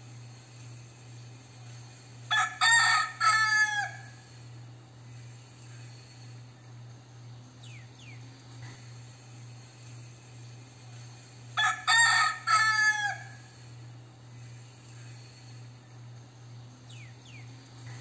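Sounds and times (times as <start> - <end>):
rooster crowing: 2.3 - 4.4, 11.6 - 13.7.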